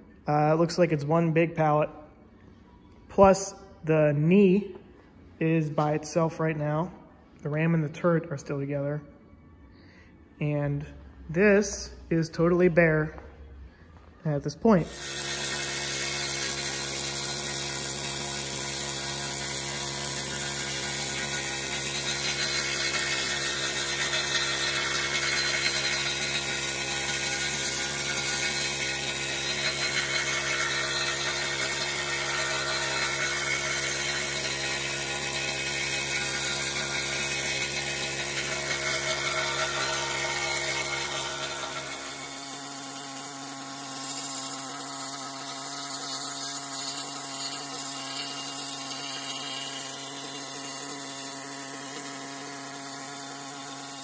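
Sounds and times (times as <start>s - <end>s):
needle scaler rattling buzz: 14.8s - 54.0s.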